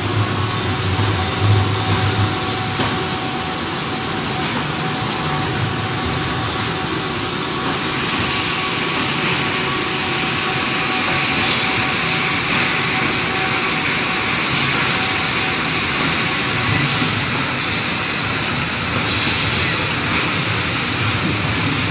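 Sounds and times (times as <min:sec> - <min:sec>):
machine running with whine: 0:00.0 - 0:21.9
hissing bursts: 0:17.6 - 0:19.9.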